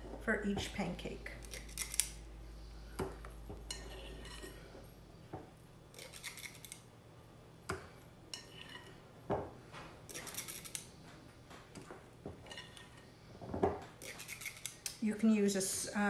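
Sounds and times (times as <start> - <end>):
spoon scraping bowl: 3.7 - 4.6, 6.0 - 6.8, 8.4 - 9.0, 12.4 - 13.1, 14.0 - 14.8.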